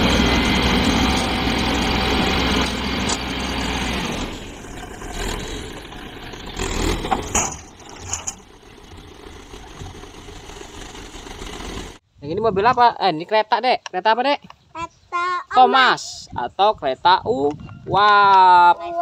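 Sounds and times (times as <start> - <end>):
dump truck engine running: 0.0 - 12.0.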